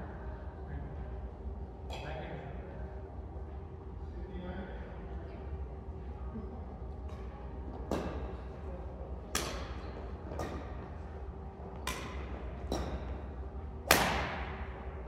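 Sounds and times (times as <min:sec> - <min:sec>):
steady low hum: 0:00.0 - 0:15.0
racket striking shuttlecock: 0:09.3 - 0:10.8, 0:11.8 - 0:13.2, 0:13.8 - 0:14.8.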